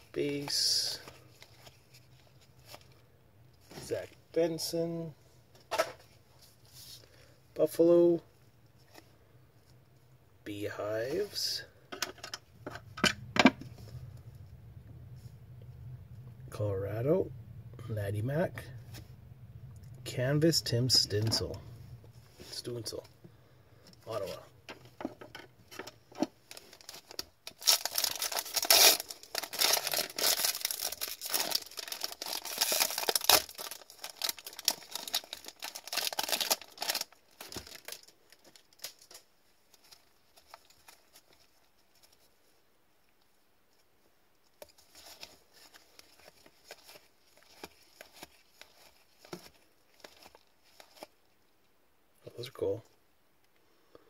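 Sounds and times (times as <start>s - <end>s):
foil wrapper tearing and crinkling: 26.5s - 41.6s, 44.7s - 51.2s.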